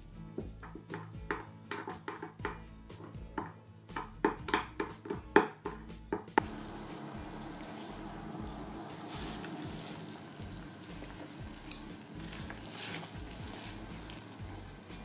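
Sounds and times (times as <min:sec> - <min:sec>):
water bubbling in a pot: 0:06.4 - 0:15.0.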